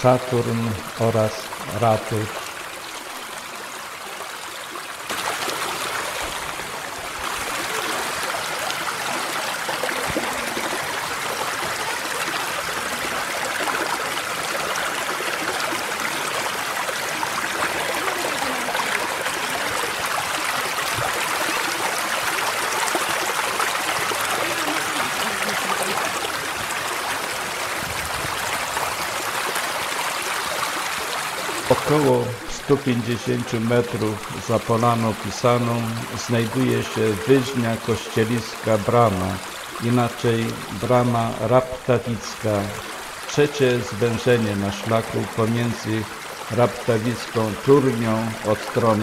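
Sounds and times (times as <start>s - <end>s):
stream rushing over rocks: 0.0s - 49.0s.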